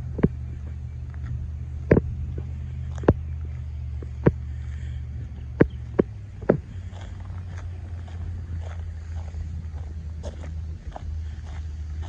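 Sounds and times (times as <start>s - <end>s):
diesel engine idling: 0.0s - 12.0s
footsteps on asphalt: 0.0s - 12.0s.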